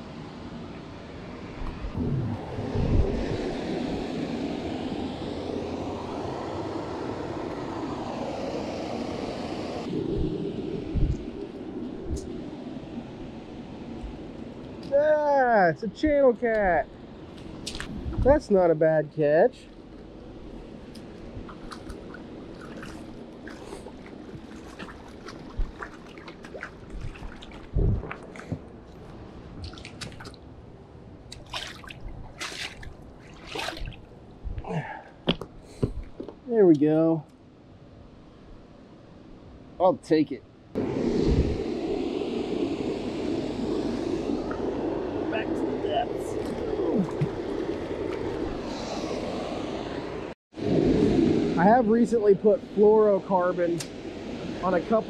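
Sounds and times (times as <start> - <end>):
aircraft passing overhead: 0.0 - 14.8, 40.8 - 55.0
water dripping and splashing: 20.9 - 30.5, 31.3 - 34.2.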